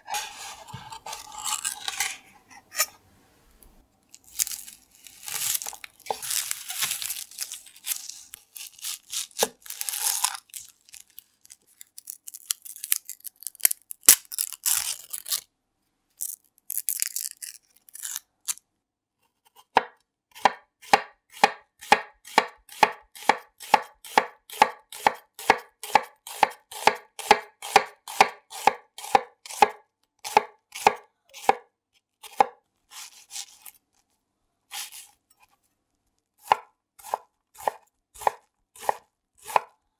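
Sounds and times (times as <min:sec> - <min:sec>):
onion skin crackling and rustling: 0:00.9 - 0:02.2, 0:04.1 - 0:15.5, 0:16.2 - 0:18.6, 0:32.8 - 0:34.0
knife slicing onion on board: 0:05.3 - 0:07.0, 0:19.5 - 0:33.7, 0:34.7 - 0:35.2, 0:36.4 - 0:39.7.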